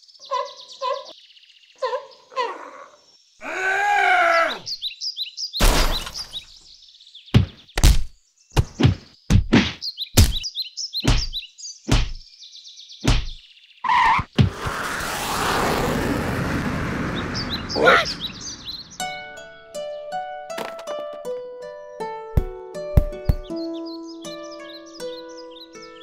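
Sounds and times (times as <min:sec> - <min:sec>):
faint high bird chirps: 0:00.0 - 0:07.8, 0:17.0 - 0:19.2
cartoon thuds and whacks: 0:05.6 - 0:06.3, 0:07.3 - 0:12.2, 0:13.0 - 0:13.4, 0:14.1 - 0:14.8.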